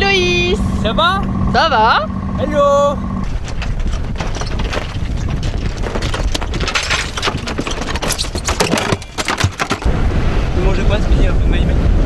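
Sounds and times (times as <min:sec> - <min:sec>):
wind and water rushing: 0:09.3 - 0:12.0.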